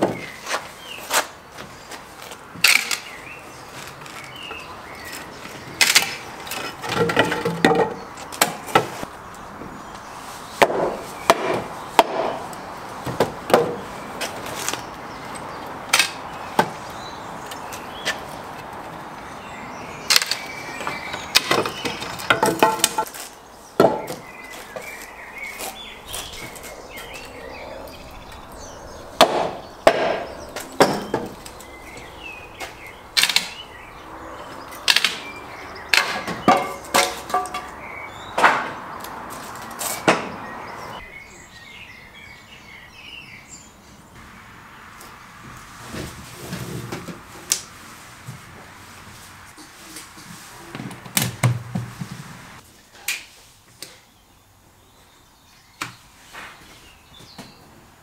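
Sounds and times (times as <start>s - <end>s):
wood splitting crackle: 21.3s - 24.2s, 29.2s - 31.7s, 33.2s - 33.6s, 34.8s - 35.3s.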